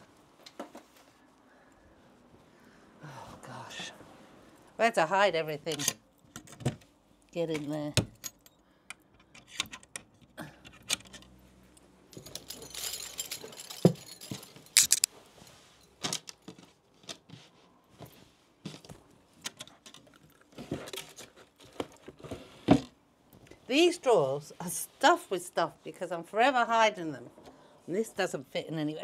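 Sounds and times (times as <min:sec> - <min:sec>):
rummaging in a drawer: 0:12.2 - 0:15.0.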